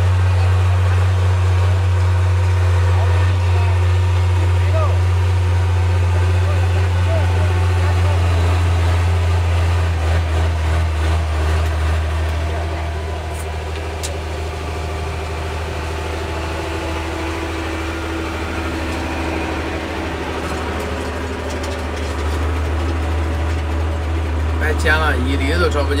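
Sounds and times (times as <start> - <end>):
harvester engine droning: 0.0 - 26.0.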